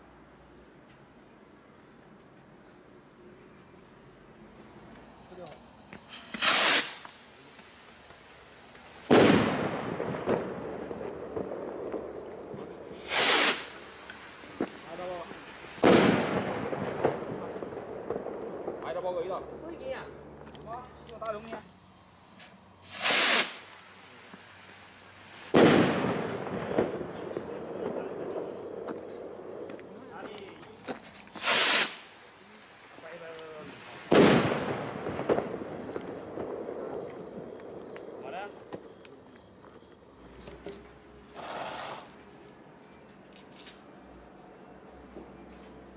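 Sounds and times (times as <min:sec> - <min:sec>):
small firework pop: 0:06.0 - 0:15.2
firework bang with echo: 0:06.1 - 0:07.2, 0:09.0 - 0:19.3, 0:22.9 - 0:23.7, 0:25.5 - 0:29.0, 0:31.4 - 0:32.1, 0:33.0 - 0:37.4.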